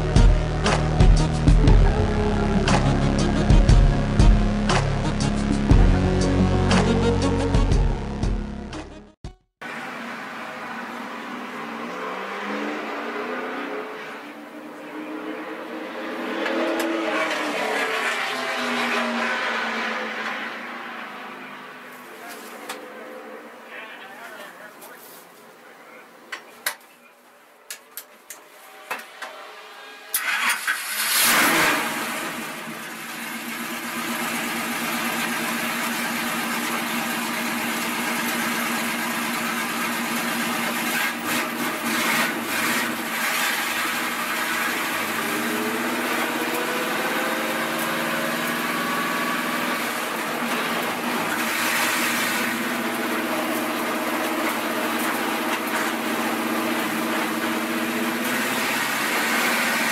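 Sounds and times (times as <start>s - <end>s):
engine revving as car pulls away: 9.8s - 21.8s, 29.6s - 59.9s
car engine starting and idling: 29.8s - 59.9s.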